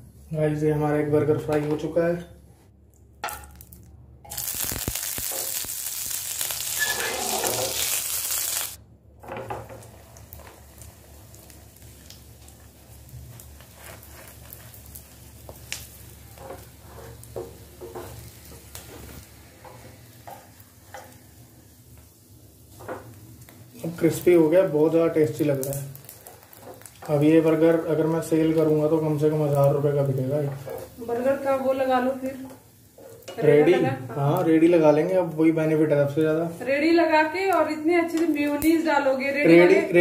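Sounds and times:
crackles and light clicks: 0:02.9 - 0:08.8, 0:09.6 - 0:21.3, 0:21.9 - 0:24.4, 0:25.2 - 0:27.6, 0:37.4 - 0:38.9
bun sizzling in a pan: 0:03.3 - 0:40.0.

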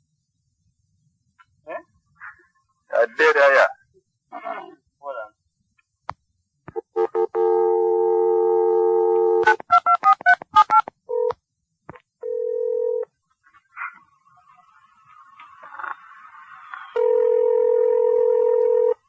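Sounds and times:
dial tone: 0:07.0 - 0:10.1, 0:12.2 - 0:13.1, 0:17.0 - 0:19.0
steady telephone tones: 0:12.2 - 0:13.1, 0:15.6 - 0:19.0.

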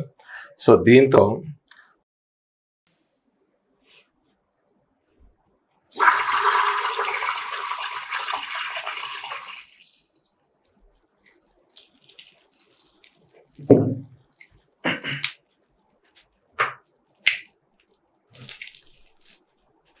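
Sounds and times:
soapy water bubbling: 0:06.0 - 0:13.6.

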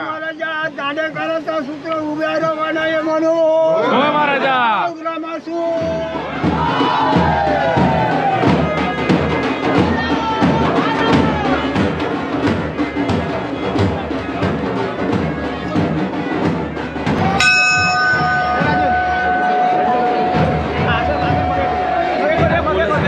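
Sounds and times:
music with fast drumming: 0:05.8 - 0:23.0
held tone: 0:17.4 - 0:20.9
voices over music: 0:18.3 - 0:23.0.

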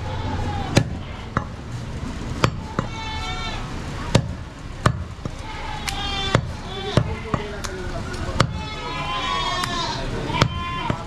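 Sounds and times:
knife chopping meat on wood block: 0:08.4 - 0:08.6.

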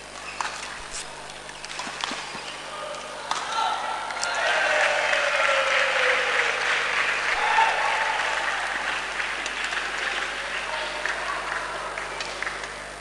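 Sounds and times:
spectators applauding and cheering: 0:03.6 - 0:13.0
long falling shout: 0:07.4 - 0:08.7.

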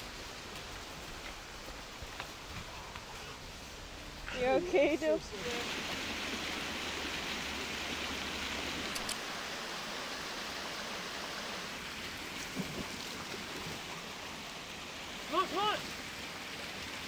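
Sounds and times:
waterfall rushing: 0:05.1 - 0:17.0.

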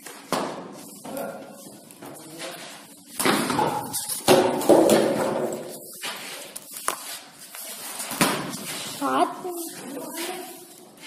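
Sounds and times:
cricket bat hitting ball: 0:03.2 - 0:05.6.

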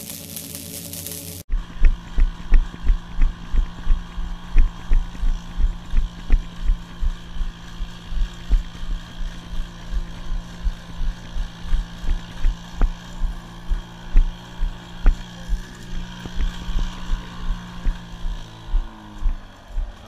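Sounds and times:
robot engine droning: 0:00.0 - 0:20.0
low thumps: 0:01.5 - 0:15.2.

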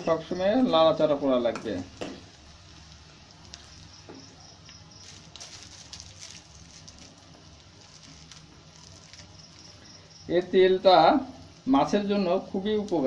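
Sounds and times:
oil sizzling and popping: 0:00.0 - 0:13.0.

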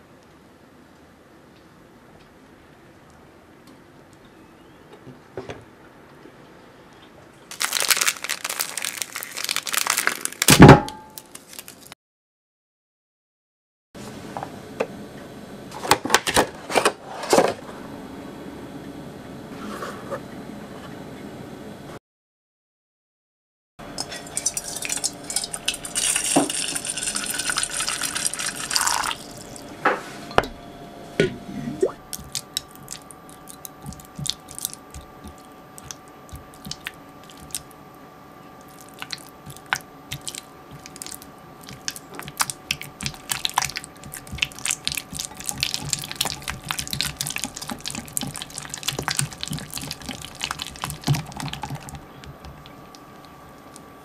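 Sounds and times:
whisk stirring and scraping: 0:41.7 - 0:52.0.

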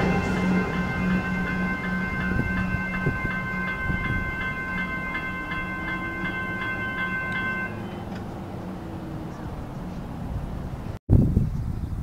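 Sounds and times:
level crossing warning bell: 0:00.0 - 0:09.4
electric train rumbling: 0:00.0 - 0:11.0.

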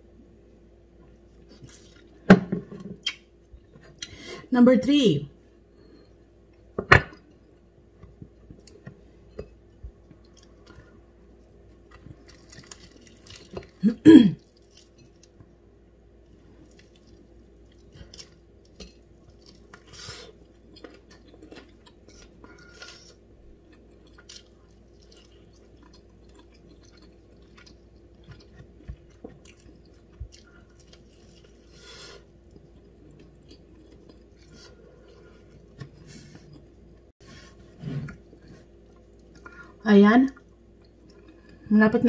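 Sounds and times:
faint steady hum: 0:00.0 - 0:42.0
soft tearing of chicken: 0:12.0 - 0:13.8.

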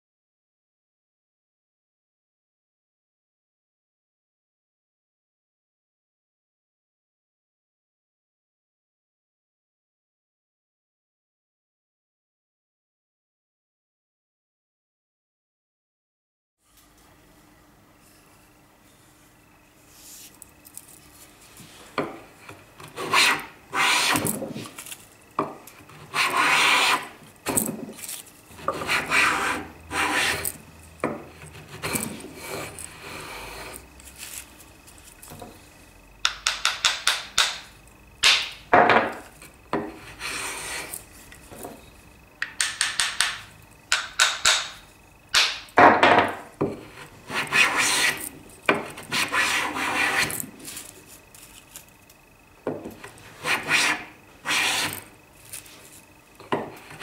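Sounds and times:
hand plane swishing on wood: 0:22.8 - 0:24.8, 0:25.9 - 0:27.2, 0:28.6 - 0:30.6, 0:31.5 - 0:33.8, 0:40.0 - 0:40.9, 0:46.8 - 0:50.4, 0:53.2 - 0:55.1.

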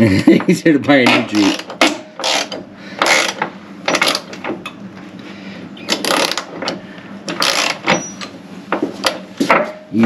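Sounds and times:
socket ratchet clicking: 0:01.4 - 0:04.4.

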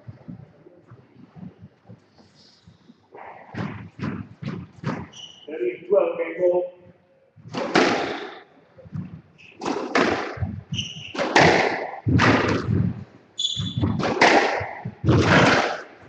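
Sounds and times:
squash ball hits: 0:03.5 - 0:05.4, 0:07.4 - 0:08.4, 0:09.4 - 0:16.0
shoes squeaking on wooden floor: 0:03.7 - 0:05.6, 0:08.8 - 0:11.5, 0:13.4 - 0:15.1.

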